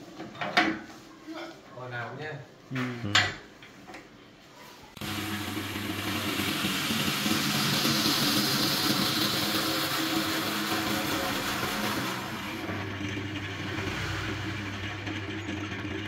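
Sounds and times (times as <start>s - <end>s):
wood lathe motor hum: 5.0s - 16.0s.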